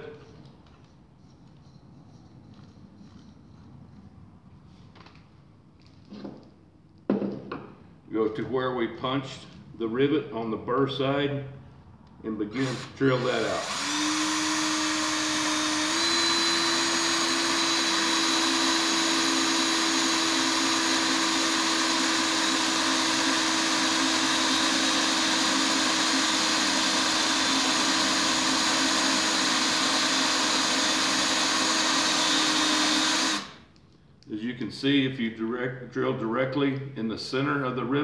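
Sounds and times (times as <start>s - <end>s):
cordless drill drilling: 12.5s - 33.7s.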